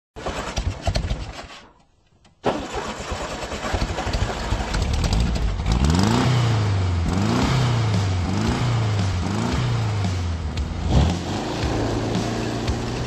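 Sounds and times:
car engine revving: 0:04.6 - 0:13.0.

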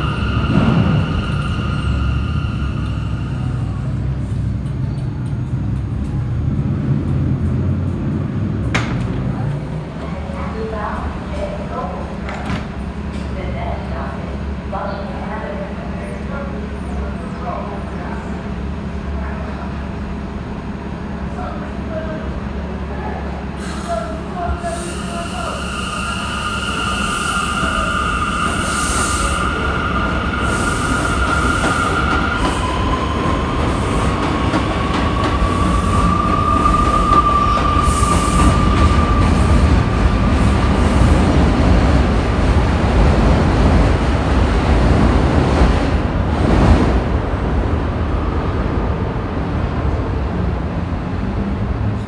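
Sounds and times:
rumble of wheels on track: 0:00.0 - 0:52.0
subway train high whine: 0:00.0 - 0:52.0
train clank: 0:06.9 - 0:09.6.

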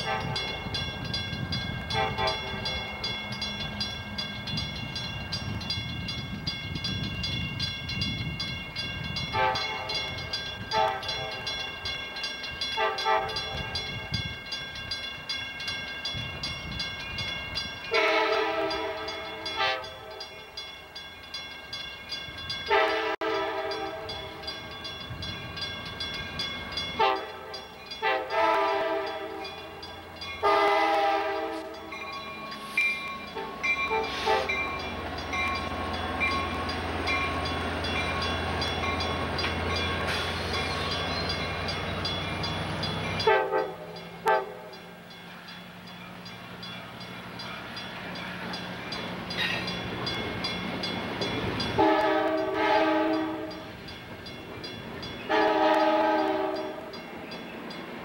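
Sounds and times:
train air horn blasts: 0:00.0 - 0:00.5, 0:01.9 - 0:02.7, 0:09.3 - 0:10.0, 0:10.7 - 0:11.4, 0:12.8 - 0:13.6, 0:17.9 - 0:20.2, 0:22.7 - 0:24.1, 0:27.0 - 0:29.5, 0:30.4 - 0:31.9, 0:32.6 - 0:34.7, 0:43.2 - 0:44.7, 0:51.8 - 0:53.6, 0:55.3 - 0:56.8
crossing bell ringing: 0:00.0 - 0:58.0
train rumble: 0:00.0 - 0:58.0.

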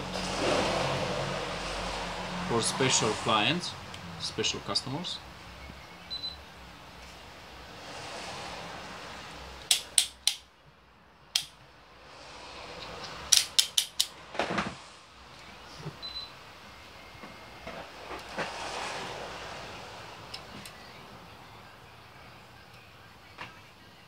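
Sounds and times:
folding knife blade clicks: 0:09.7 - 0:10.4, 0:13.3 - 0:14.1
scraping rustle of handling: 0:17.6 - 0:19.8.

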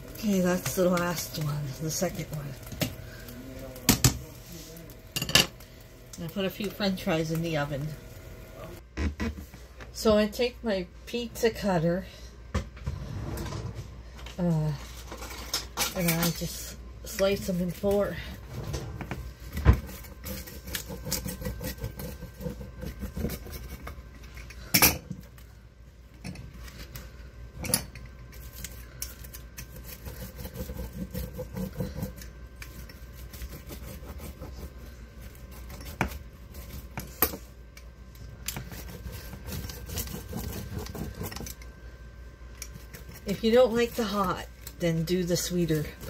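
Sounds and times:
pizza cutter rolling and scraping: 0:00.0 - 0:05.0, 0:12.8 - 0:13.9, 0:17.1 - 0:24.7, 0:28.4 - 0:37.6, 0:38.2 - 0:41.8.

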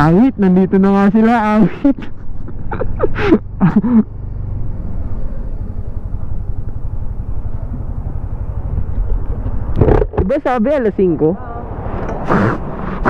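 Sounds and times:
scooter engine idling: 0:05.3 - 0:09.8.

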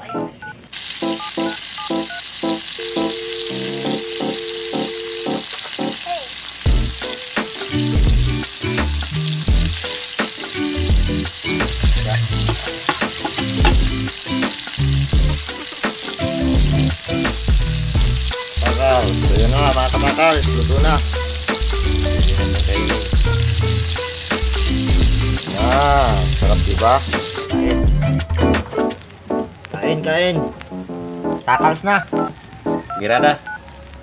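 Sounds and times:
oil sizzling in wok: 0:00.7 - 0:27.6
background music with bass: 0:06.7 - 0:09.9, 0:10.6 - 0:29.0
spatula stirring: 0:12.3 - 0:16.2.

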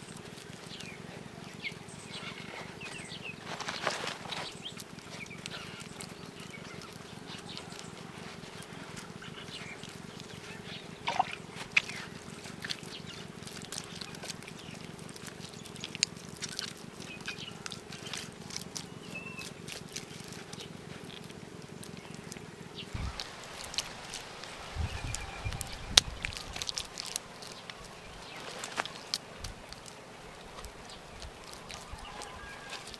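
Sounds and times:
steady low hum: 0:00.0 - 0:32.9
wet clay squelching by hand: 0:00.0 - 0:32.9.

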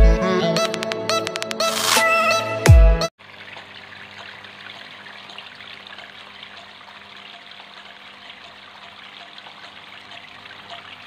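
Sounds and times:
fountain water trickling: 0:03.2 - 0:11.0.

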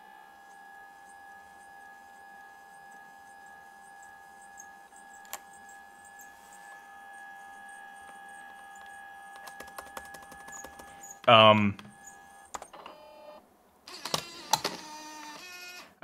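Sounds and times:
optical drive ticking and whining: 0:00.0 - 0:16.0
optical drive clicks: 0:02.8 - 0:06.3, 0:07.1 - 0:13.2, 0:13.9 - 0:15.9.

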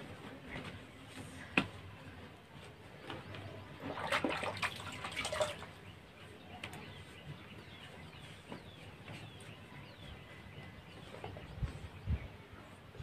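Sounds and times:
water splashing and trickling: 0:03.8 - 0:05.8.

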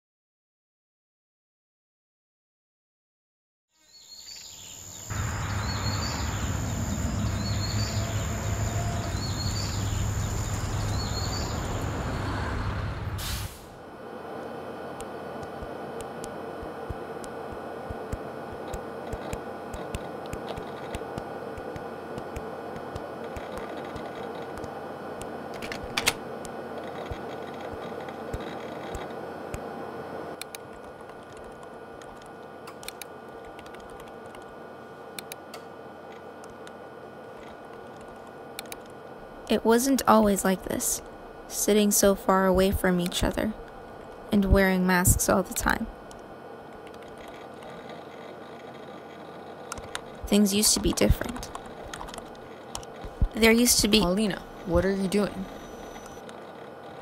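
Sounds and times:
quiet steady hum: 0:04.0 - 0:57.0
steady high whine: 0:04.6 - 0:57.0
loud low rumble: 0:05.1 - 0:13.8.

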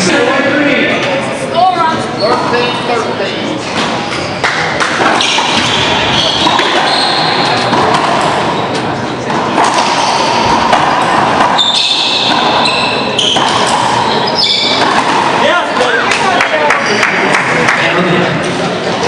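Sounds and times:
murmur of spectators: 0:00.0 - 0:19.0
ball hitting racquets and walls: 0:03.6 - 0:17.0
shoes squeaking on hardwood floor: 0:05.2 - 0:08.8, 0:09.7 - 0:15.5.

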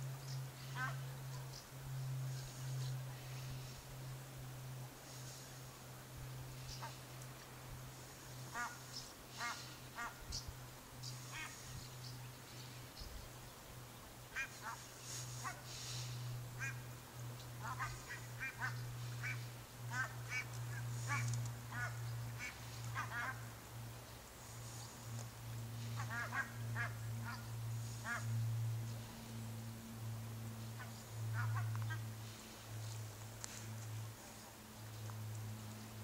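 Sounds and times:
steady low hum: 0:00.0 - 0:36.0
geese honking: 0:00.6 - 0:01.6, 0:06.6 - 0:07.2, 0:07.9 - 0:10.5, 0:11.1 - 0:11.8, 0:14.2 - 0:23.6, 0:25.8 - 0:29.3, 0:30.6 - 0:33.6.

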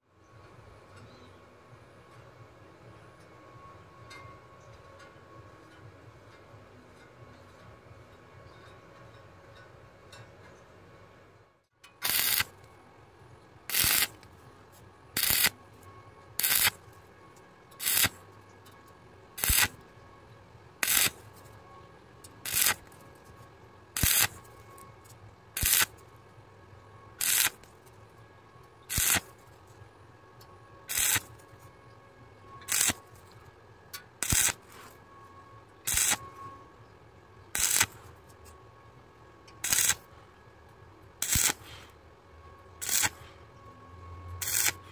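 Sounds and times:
welding arc crackling and hissing: 0:12.0 - 0:12.5, 0:13.7 - 0:14.2, 0:15.2 - 0:15.5, 0:16.4 - 0:16.8, 0:17.8 - 0:18.2, 0:19.4 - 0:19.8, 0:20.8 - 0:21.2, 0:22.4 - 0:22.8, 0:24.0 - 0:24.5, 0:25.6 - 0:25.9, 0:27.2 - 0:27.7, 0:28.9 - 0:29.3, 0:30.9 - 0:31.3, 0:32.7 - 0:33.1, 0:34.2 - 0:34.9, 0:35.9 - 0:36.2, 0:37.6 - 0:38.0, 0:39.6 - 0:40.0, 0:41.2 - 0:41.6, 0:42.8 - 0:43.2, 0:44.4 - 0:44.8.

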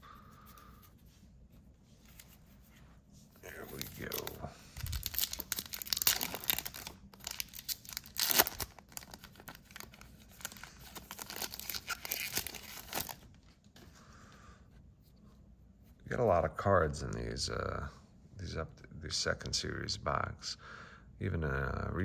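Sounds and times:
card pack wrapper tearing: 0:03.5 - 0:13.2.

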